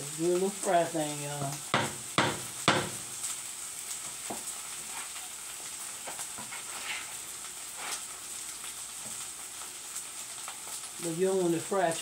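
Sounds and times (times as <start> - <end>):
hash sizzling in a skillet: 0.0 - 12.0
wooden spoon scraping: 6.0 - 7.2.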